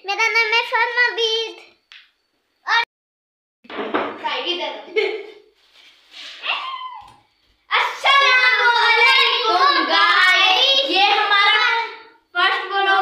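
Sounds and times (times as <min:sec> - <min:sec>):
children singing unaccompanied: 0:07.7 - 0:13.0.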